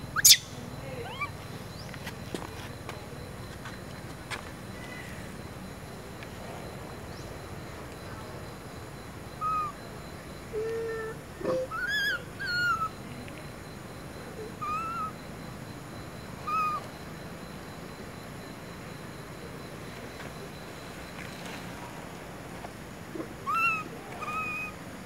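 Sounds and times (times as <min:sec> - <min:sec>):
baby monkey whimpering coos: 0:23.4 - 0:24.7.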